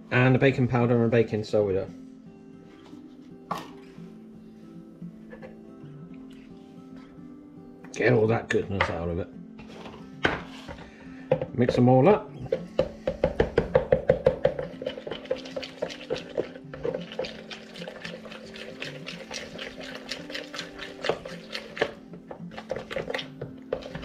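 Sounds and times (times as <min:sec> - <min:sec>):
background music with held tones: 0:00.0 - 0:24.0
spoon knocking plastic bowl: 0:12.5 - 0:16.2.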